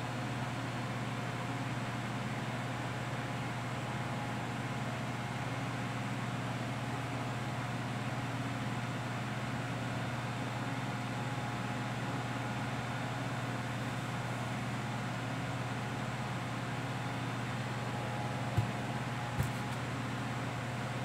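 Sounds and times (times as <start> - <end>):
steady low hum: 18.3 - 19.9.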